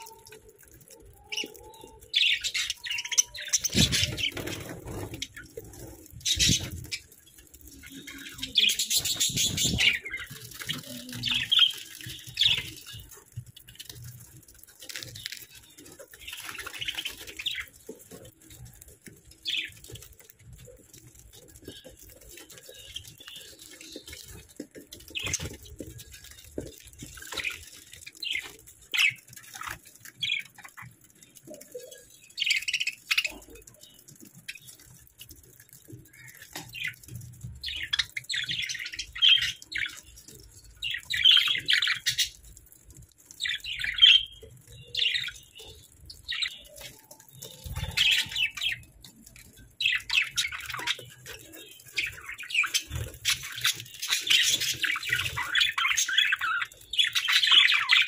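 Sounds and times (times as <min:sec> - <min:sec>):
budgerigars chirping and chattering: 0:00.0 - 0:14.2, 0:35.6 - 0:42.5, 0:43.2 - 0:58.0.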